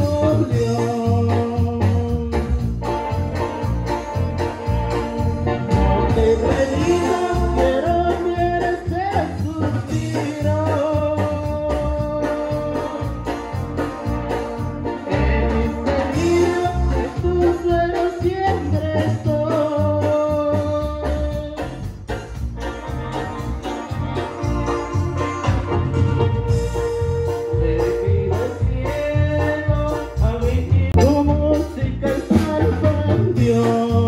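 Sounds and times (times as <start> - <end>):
person singing into microphone: 0.0 - 2.8, 5.7 - 13.8, 14.9 - 21.9, 26.9 - 34.0
drums and bass: 0.0 - 34.0
organ-like electronic keyboard: 0.0 - 34.0.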